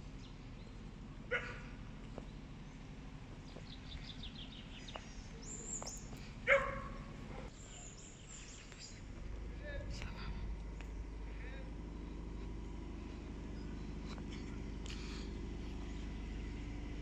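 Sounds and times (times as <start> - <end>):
small birds chirping: 0.0 - 17.0
dog barking: 1.3 - 1.7, 6.5 - 7.5.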